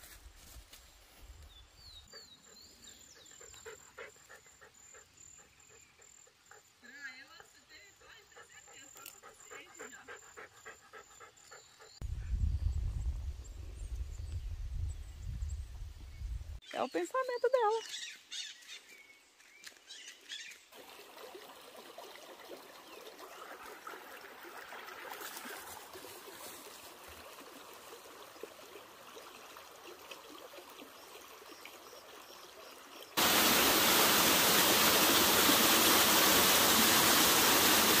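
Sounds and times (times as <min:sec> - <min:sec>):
small waterfall splashing: 0:20.7 - 0:38.0.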